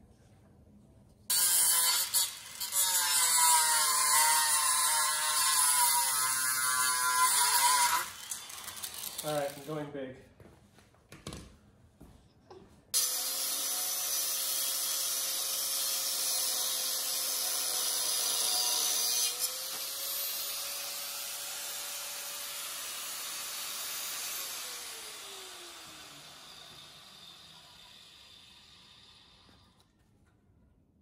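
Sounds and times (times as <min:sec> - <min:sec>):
angle grinder cutting metal: 0:01.3 - 0:09.9, 0:13.0 - 0:29.8
grinder winding down: 0:01.4 - 0:09.8, 0:13.0 - 0:29.8.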